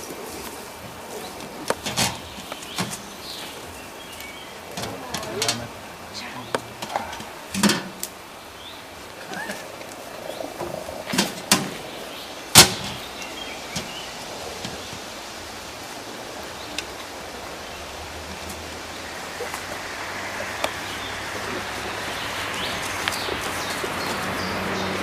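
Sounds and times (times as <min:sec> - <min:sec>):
outdoor background noise: 0:00.0 - 0:25.0
loud sharp bang: 0:12.5 - 0:13.0.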